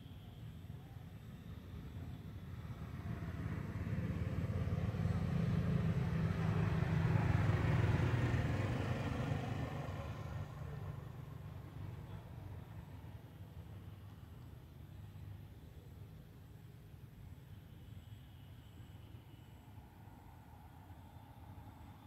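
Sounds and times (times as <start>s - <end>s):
vehicle passing by: 2.6s - 13.5s.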